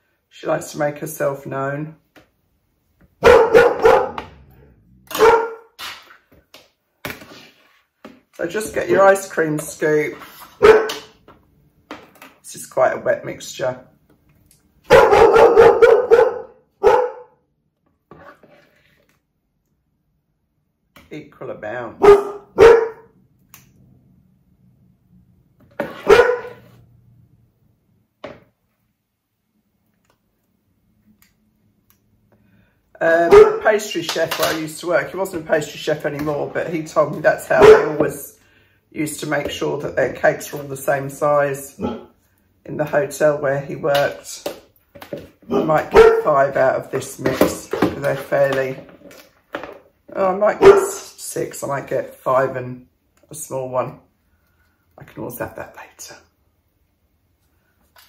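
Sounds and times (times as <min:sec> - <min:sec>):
dog barking: 0:03.2 - 0:04.4, 0:05.1 - 0:05.7, 0:10.6 - 0:11.1, 0:14.9 - 0:17.4, 0:22.0 - 0:23.1, 0:26.0 - 0:26.7, 0:33.3 - 0:33.7, 0:37.6 - 0:38.0, 0:41.8 - 0:42.1, 0:45.5 - 0:46.3, 0:50.6 - 0:51.0.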